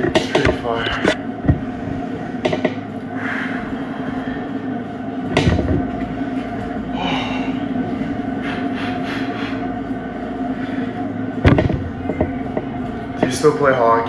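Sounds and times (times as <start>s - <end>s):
knocks: 0.0s - 1.6s, 5.3s - 5.9s, 11.4s - 13.3s
exercise bike whirring: 0.0s - 14.0s.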